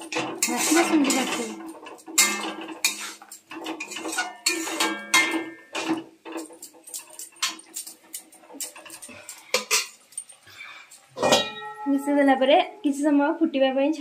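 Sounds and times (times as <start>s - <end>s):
metal ladle scraping a pan: 0.0s - 10.0s, 11.1s - 11.8s.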